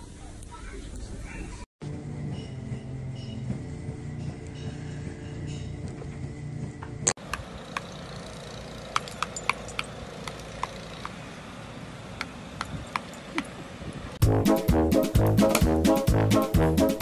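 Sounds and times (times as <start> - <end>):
sharp metallic clinks: 7.8 - 11.2, 12.6 - 13.6.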